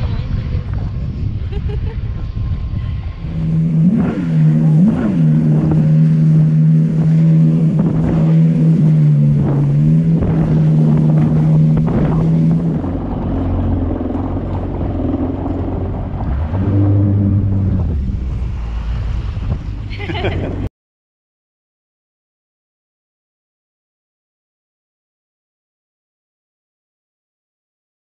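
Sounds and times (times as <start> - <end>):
hull slapping over waves: 0.0 - 20.7
jet ski engine drone: 0.0 - 20.7
wind on microphone: 0.0 - 20.7.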